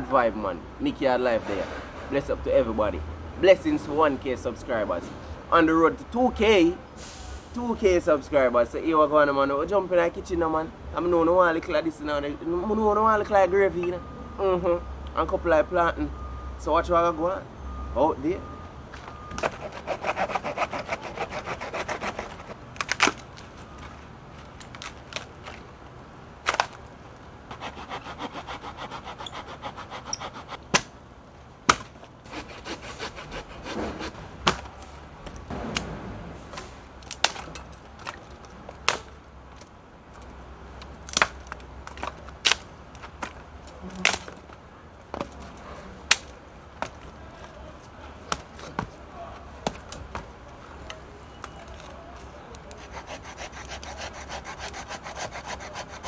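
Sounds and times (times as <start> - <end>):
hand saw cutting branch: 19.4 - 22.6, 27.5 - 30.9, 32.3 - 34.2, 52.7 - 56.0
dry sticks cracking and knocking: 37.0 - 47.6.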